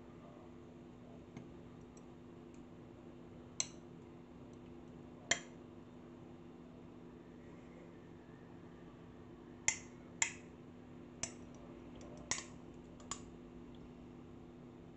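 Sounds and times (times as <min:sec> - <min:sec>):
faint steady hum: 0:00.0 - 0:14.9.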